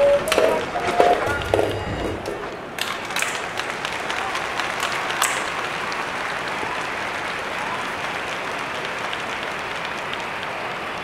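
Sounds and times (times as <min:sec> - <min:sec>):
crowd applause: 0:00.0 - 0:11.0.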